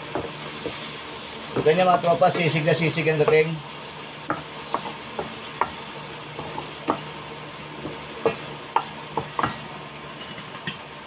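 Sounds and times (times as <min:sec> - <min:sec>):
frying sizzle: 0:00.0 - 0:11.0.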